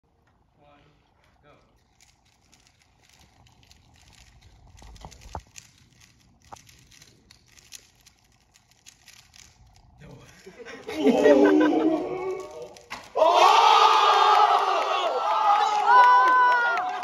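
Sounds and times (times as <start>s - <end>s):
puzzle cubes clicking: 1.9s - 10.9s.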